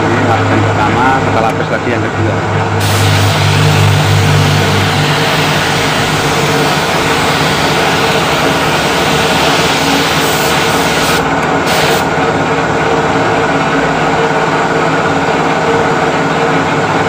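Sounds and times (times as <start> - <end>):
motor running steadily: 0.0 - 17.0
spray gun hissing: 2.8 - 12.1.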